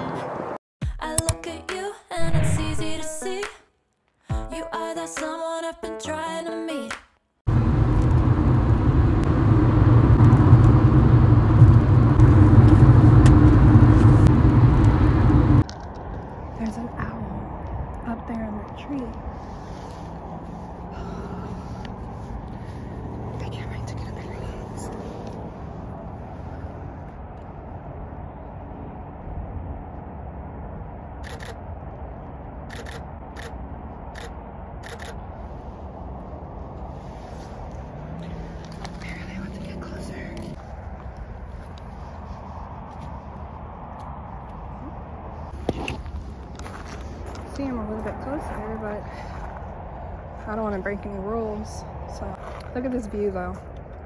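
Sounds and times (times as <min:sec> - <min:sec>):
car cabin engine and road rumble: 0:07.5 - 0:43.2
camera shutter clicks: 0:31.2 - 0:31.6, 0:32.7 - 0:33.6, 0:34.2 - 0:35.2.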